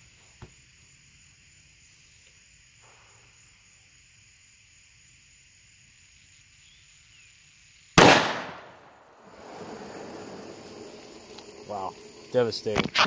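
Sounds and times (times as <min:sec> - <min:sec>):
revolver gunshot with echo: 0:08.0 - 0:09.0.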